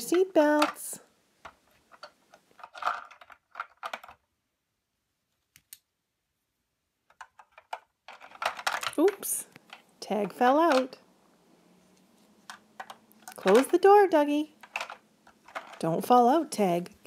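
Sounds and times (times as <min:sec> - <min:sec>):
plastic toys clicking: 0:00.0 - 0:04.2, 0:07.1 - 0:11.0, 0:12.4 - 0:13.9, 0:14.6 - 0:16.0.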